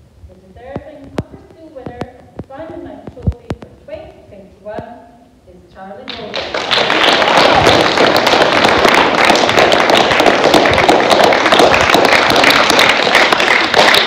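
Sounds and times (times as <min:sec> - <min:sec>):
audience applauding: 0:06.1 - 0:14.0.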